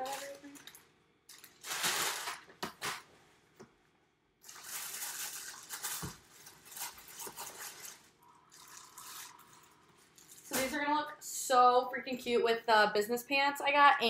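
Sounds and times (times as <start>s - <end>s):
plastic wrapper and paper crinkling: 0.0s - 3.1s, 4.4s - 10.9s.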